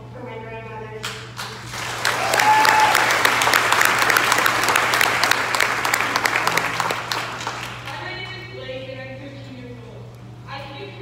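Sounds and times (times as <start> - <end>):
crowd applauding: 1.6 - 8.0.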